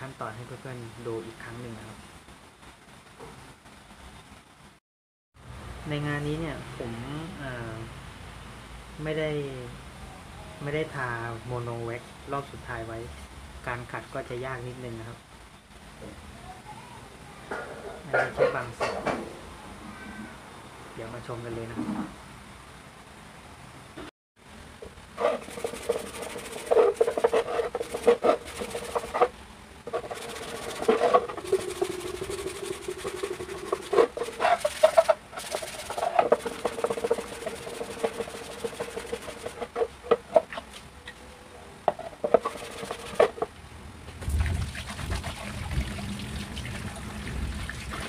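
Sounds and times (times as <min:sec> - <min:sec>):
wet sandpaper scrubbing: 0:25.2 - 0:40.2, 0:42.2 - 0:43.5.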